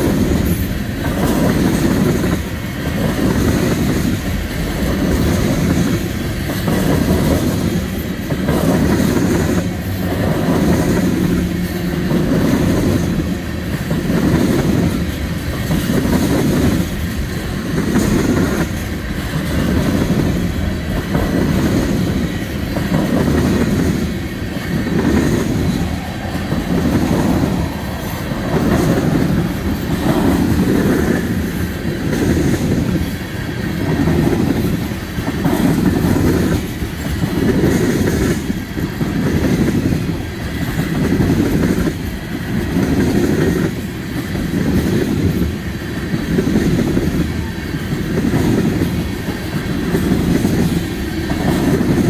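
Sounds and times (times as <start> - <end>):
freight train rumbling past: 0.0 - 52.0.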